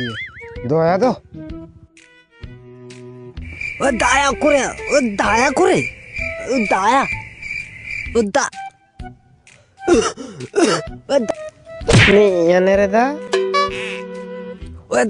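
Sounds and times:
crickets chirping: 3.4s - 8.4s
man moaning: 9.9s - 10.9s.

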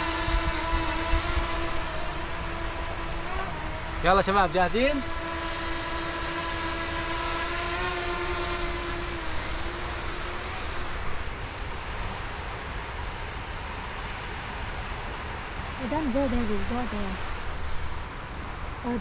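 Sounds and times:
drone propellers whining: 0.0s - 14.7s
steady rushing noise: 0.0s - 19.0s.

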